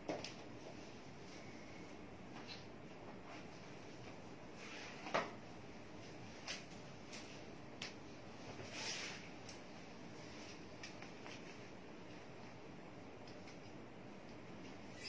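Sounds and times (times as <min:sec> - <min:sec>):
soft rustle: 0:08.3 - 0:12.3.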